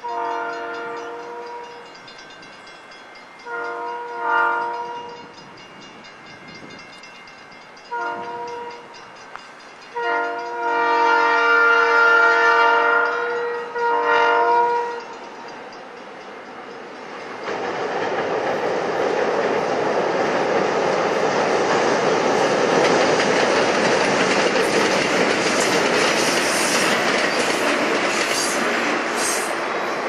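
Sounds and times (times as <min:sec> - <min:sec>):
train wheels rumbling on rails: 0:00.0 - 0:30.0.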